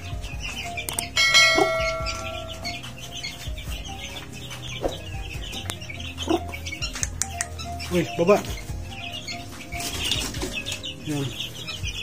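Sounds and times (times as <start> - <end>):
chicks peeping: 0.0 - 12.0
bell-like chime: 1.1 - 3.0.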